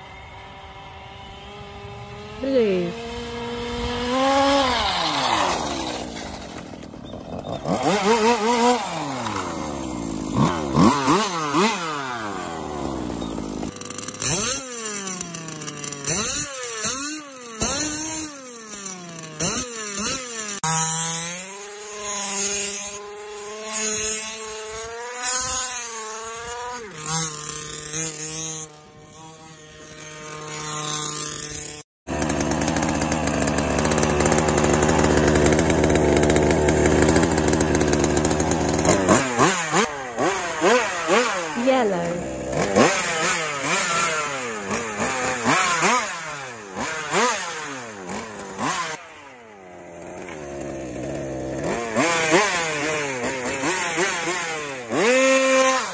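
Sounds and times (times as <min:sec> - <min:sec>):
racing car engine revving: 0:07.6 - 0:15.1, 0:33.8 - 0:49.4.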